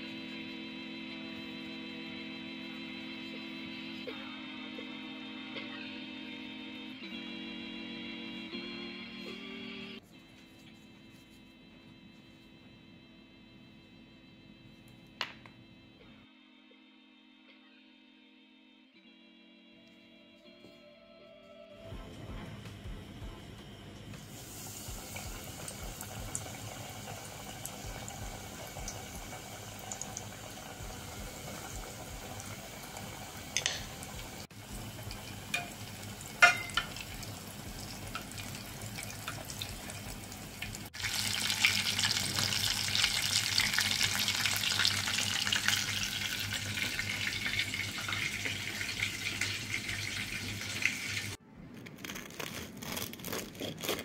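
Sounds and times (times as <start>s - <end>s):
deep-frying sizzle in oil: 24.2s - 51.4s.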